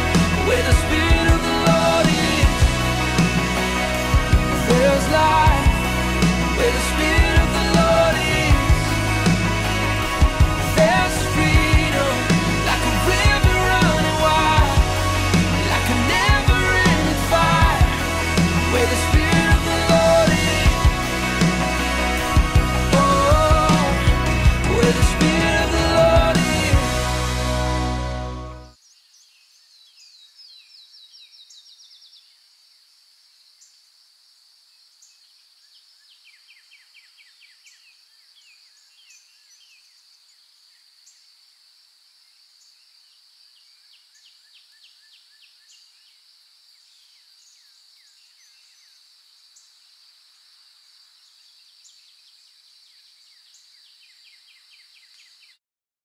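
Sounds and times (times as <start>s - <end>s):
steady high drone: 0.0s - 28.7s.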